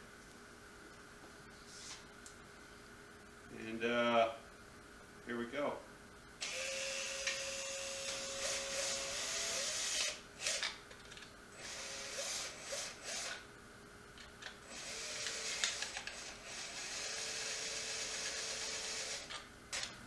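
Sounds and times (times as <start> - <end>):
cordless drill cutting through lid: 6.4 - 10.8, 11.6 - 13.4, 14.7 - 19.4.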